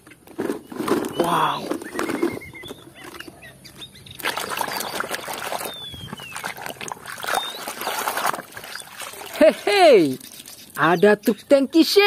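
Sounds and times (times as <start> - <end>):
water sloshing in plastic tub: 4.1 - 10.8.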